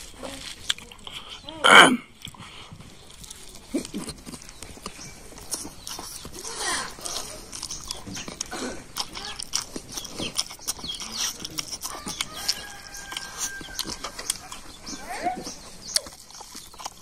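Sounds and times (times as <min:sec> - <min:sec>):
man chewing and lip-smacking: 0:00.0 - 0:17.0
animal calls: 0:03.8 - 0:17.0.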